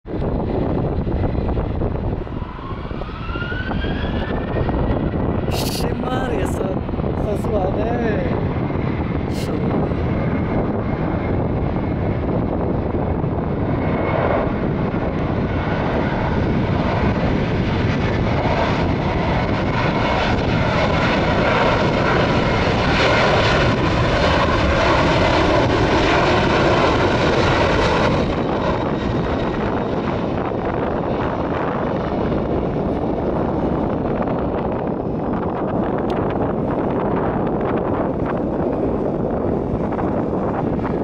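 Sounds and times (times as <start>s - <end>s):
jet engines rumbling and whining: 0.1s - 41.0s.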